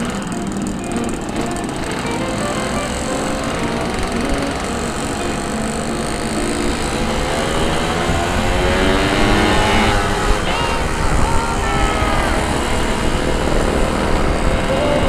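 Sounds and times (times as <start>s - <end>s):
two-stroke motorcycle engine running: 0.0s - 15.0s.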